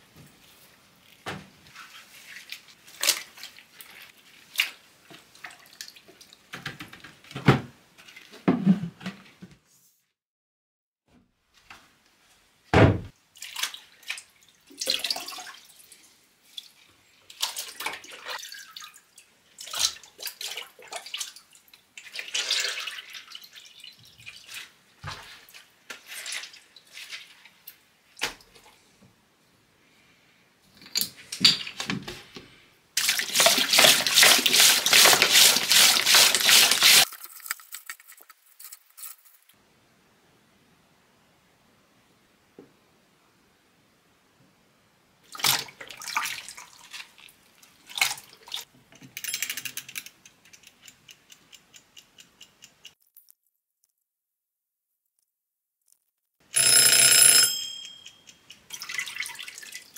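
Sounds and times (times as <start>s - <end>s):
water sloshing in plastic crates: 1.3s - 9.0s, 16.6s - 28.8s, 33.0s - 38.2s, 45.3s - 48.7s
water streaming from a hose: 33.0s - 37.5s.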